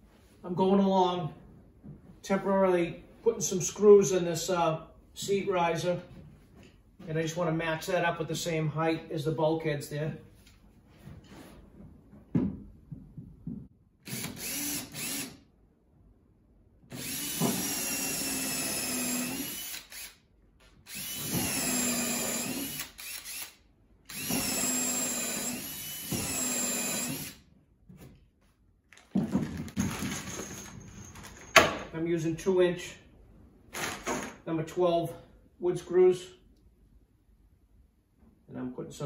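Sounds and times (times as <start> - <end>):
cordless drill driving screws: 14.0 - 15.4, 16.9 - 20.2, 20.9 - 27.4.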